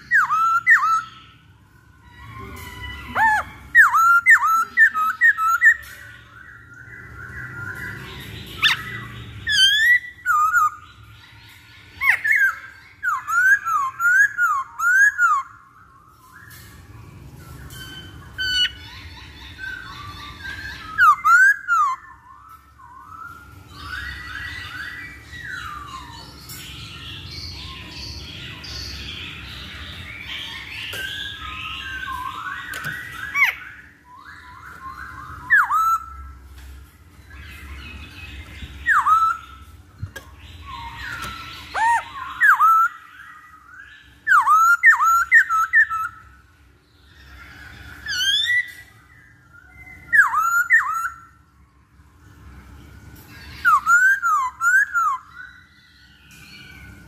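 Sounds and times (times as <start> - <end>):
soft bird chattering: 0.0 - 15.6
bird whistling song: 0.0 - 36.6, 37.2 - 52.5, 53.2 - 57.0
very high chirps: 0.0 - 57.0.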